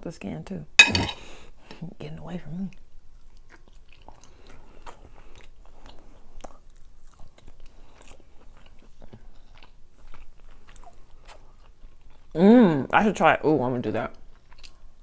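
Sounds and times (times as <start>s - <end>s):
person chewing food: 2.7s - 12.4s, 14.1s - 15.0s.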